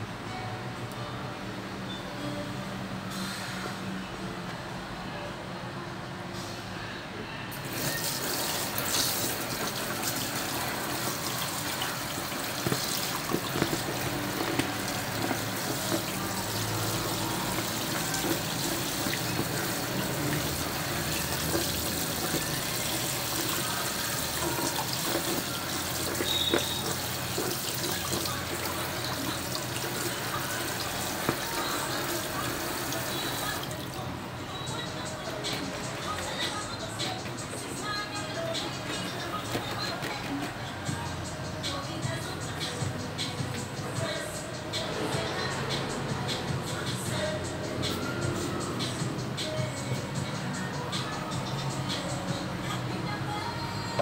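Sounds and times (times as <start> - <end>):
tap water running into sink: 7.6 - 33.9.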